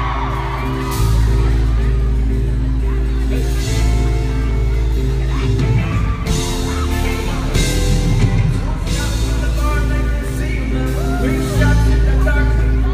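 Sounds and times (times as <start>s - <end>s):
live band playing: 0.0s - 12.9s
man singing into microphone: 6.4s - 12.9s.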